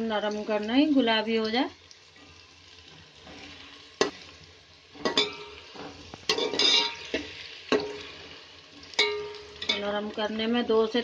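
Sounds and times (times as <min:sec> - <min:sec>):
onions sizzling in oil: 0:00.0 - 0:11.0
metal ladle scraping a pot: 0:02.2 - 0:04.2, 0:04.9 - 0:08.3.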